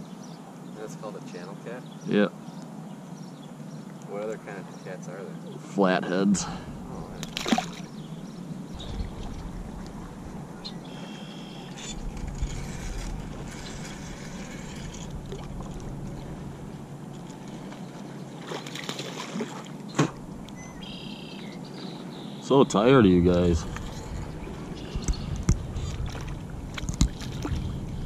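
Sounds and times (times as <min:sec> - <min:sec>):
water lapping against canoe: 0:06.4 - 0:22.4, 0:23.2 - 0:28.0.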